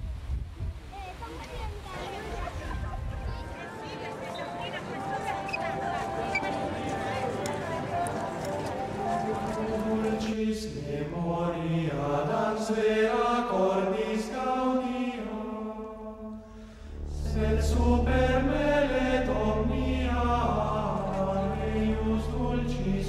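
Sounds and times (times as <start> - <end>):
choir chanting slow phrases: 3.4 - 23.0
deep steady low note: 16.8 - 23.0.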